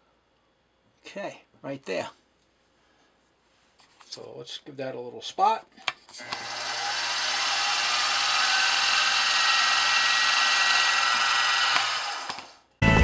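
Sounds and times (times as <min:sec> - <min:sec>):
milling machine spindle whirring: 0:06.2 - 0:12.6
music: 0:12.8 - 0:13.0.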